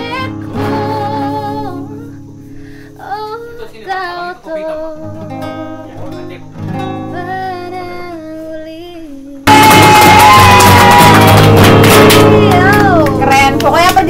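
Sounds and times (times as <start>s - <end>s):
woman singing: 0.0s - 2.3s, 2.9s - 5.6s, 7.0s - 9.9s, 12.2s - 14.0s
acoustic guitar: 0.0s - 14.0s.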